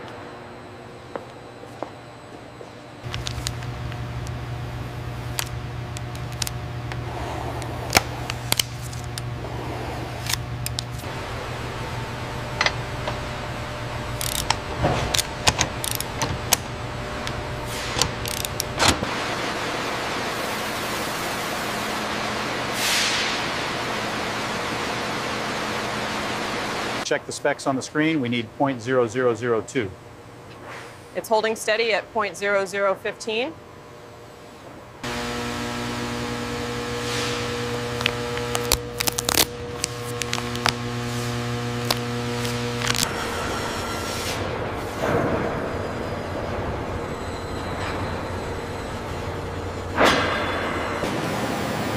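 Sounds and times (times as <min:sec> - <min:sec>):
low machine hum: 0:00.0 - 0:51.9
shop ambience hiss: 0:02.6 - 0:33.4, 0:34.3 - 0:45.3
scattered clicks: 0:03.1 - 0:04.4, 0:14.2 - 0:17.4
plastic film crinkling: 0:37.9 - 0:43.1.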